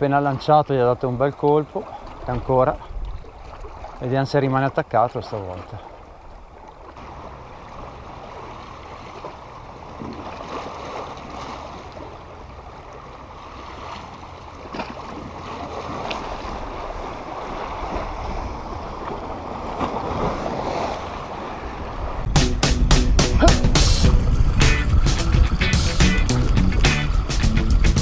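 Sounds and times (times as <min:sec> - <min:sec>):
waves washing against rocks: 0:13.2 - 0:22.4, 0:23.3 - 0:28.0
low rumble: 0:22.0 - 0:28.0.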